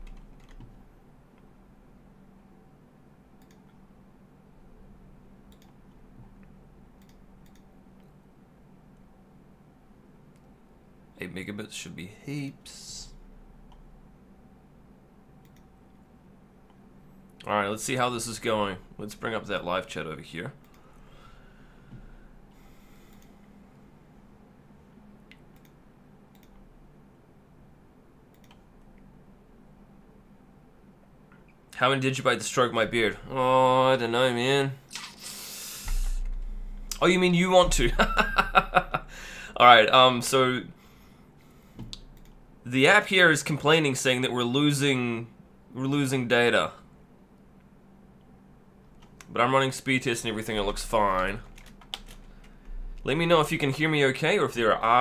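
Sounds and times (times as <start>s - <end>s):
low steady hum: 0.0s - 55.0s
computer clicks: 3.4s - 3.8s, 5.5s - 5.9s, 7.0s - 8.1s, 15.4s - 15.7s, 25.3s - 26.6s, 28.3s - 28.7s, 51.4s - 52.6s.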